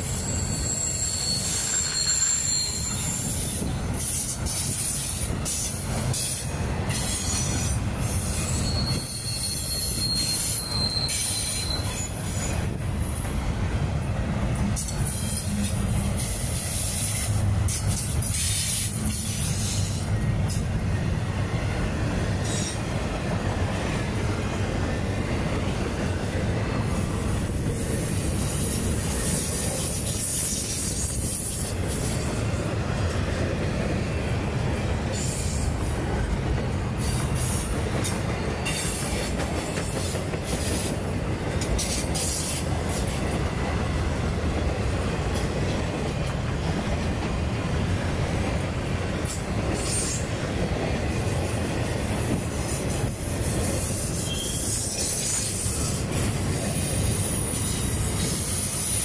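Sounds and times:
wheel squeal: 0.0s - 5.2s, 6.9s - 13.3s, 53.7s - 55.9s
freight train rumbling: 0.0s - 59.0s
wheels clicking over rail joints: 34.6s - 59.0s.

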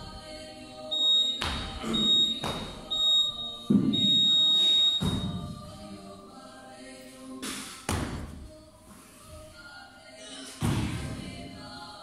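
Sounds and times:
long timer beep: 0.9s - 5.3s
short high timer beeps: 1.0s - 1.4s, 2.0s - 5.2s.

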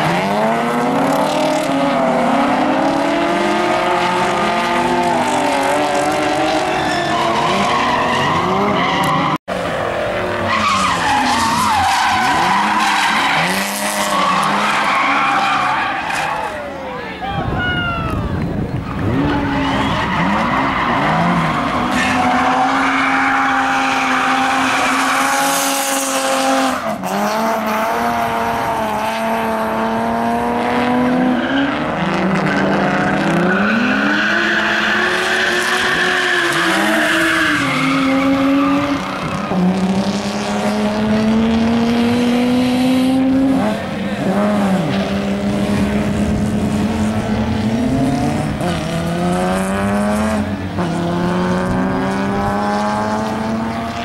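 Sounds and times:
car engines revving: 0.0s - 17.4s, 18.0s - 54.0s
tyres squealing: 10.5s - 17.2s.

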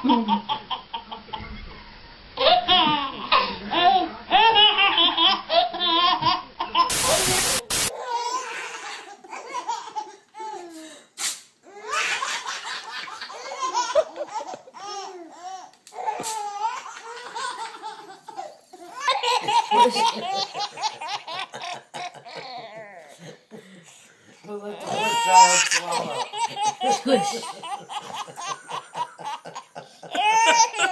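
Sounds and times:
babies laughing: 7.9s - 10.7s, 11.7s - 23.4s, 24.8s - 30.9s.

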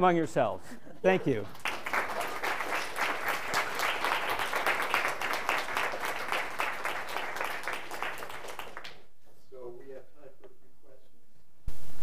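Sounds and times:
audience applauding: 1.2s - 9.1s.

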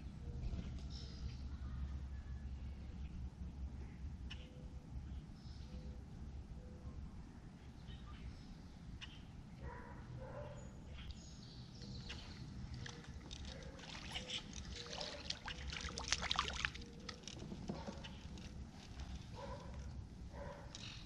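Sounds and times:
water lapping against kayak hull: 12.1s - 19.9s
fish splashing at surface: 12.8s - 17.2s.

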